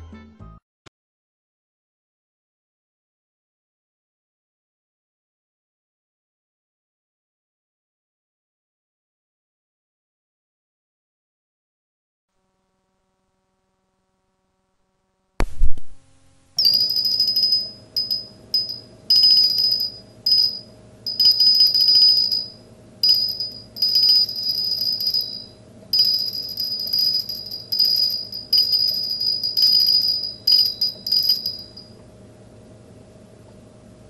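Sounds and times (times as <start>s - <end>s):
faint steady hum: 12.4s - 34.0s
high ringing tone: 16.6s - 32.0s.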